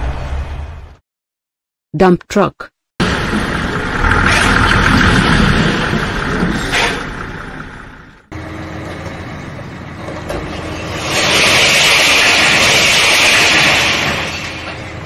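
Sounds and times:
heavy diesel machinery running: 0:03.0 - 0:15.0.

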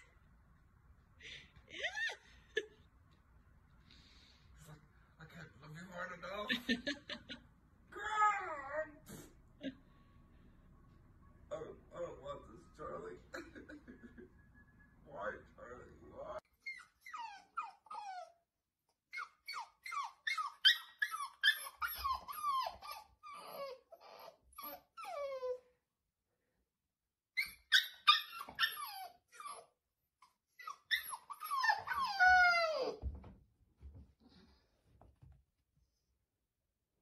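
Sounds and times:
puppy whining: 0:16.2 - 0:25.8, 0:27.4 - 0:33.2.

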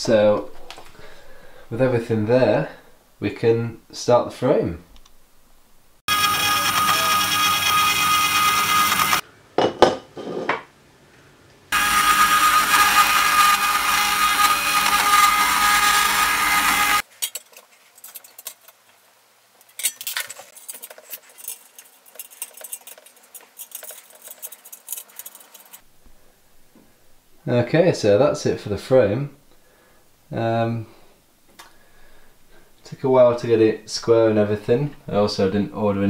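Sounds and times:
metal-cutting saw with high ring: 0:06.1 - 0:09.2.

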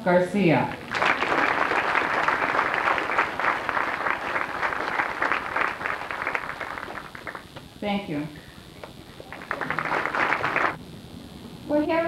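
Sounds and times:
audience applauding: 0:00.7 - 0:07.6, 0:08.8 - 0:10.8.

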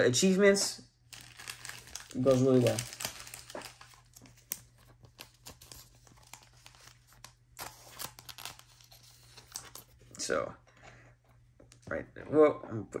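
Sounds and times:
trading cards and plastic rustling: 0:01.1 - 0:10.3.

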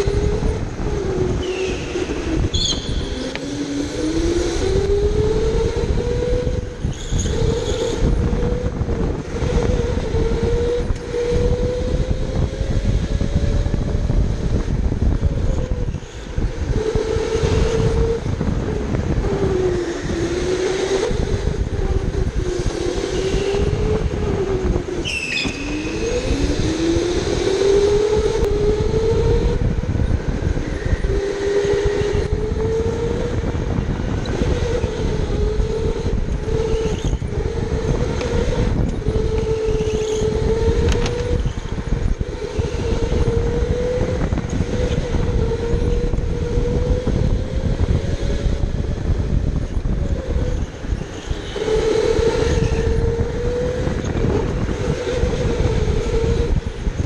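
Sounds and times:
electric go-kart motor whining: 0:00.0 - 0:57.0
short high squeal: 0:25.0 - 0:26.2.

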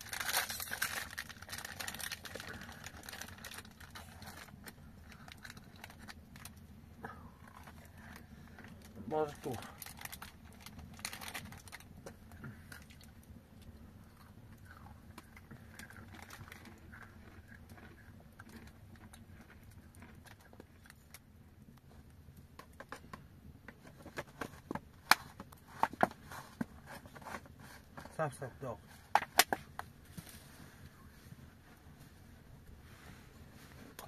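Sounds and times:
foil wrappers crinkling: 0:00.0 - 0:06.6, 0:07.5 - 0:13.1.

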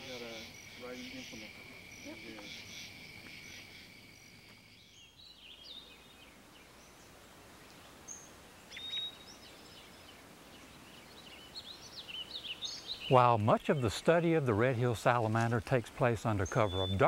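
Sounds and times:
high insect trill: 0:00.0 - 0:05.3
birds chirping: 0:00.0 - 0:17.0.

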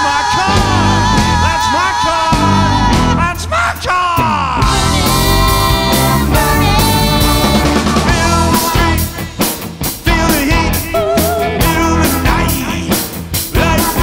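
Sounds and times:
steady drum beat: 0:00.5 - 0:03.4, 0:04.6 - 0:14.0
electric guitars: 0:04.6 - 0:14.0
person singing: 0:10.1 - 0:14.0.

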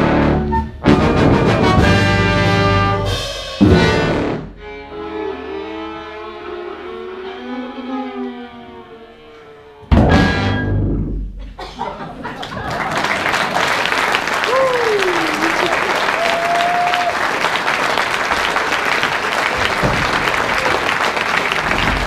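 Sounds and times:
band playing loud chords: 0:00.0 - 0:04.6
violin bowing: 0:04.5 - 0:09.9.

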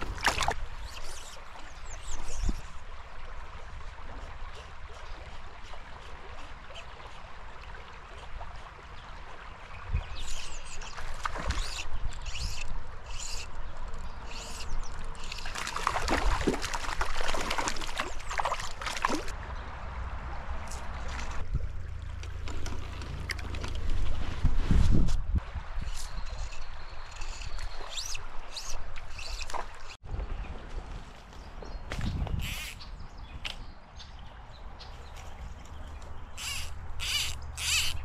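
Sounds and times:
stream trickling: 0:00.0 - 0:24.7, 0:25.3 - 0:38.0
fish splashing in water: 0:15.3 - 0:19.3.

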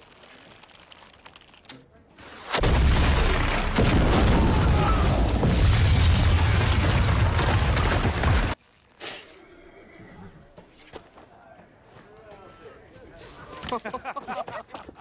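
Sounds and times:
deep rumbling explosion: 0:02.6 - 0:08.6.

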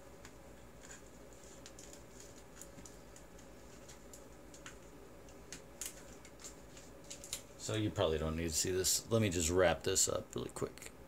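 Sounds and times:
steady low hum: 0:00.0 - 0:11.0
light ticks of handled wires: 0:00.2 - 0:07.5.

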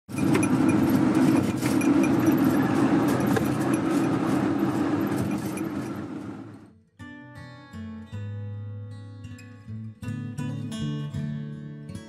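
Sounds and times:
car engine and road noise: 0:00.0 - 0:06.7.

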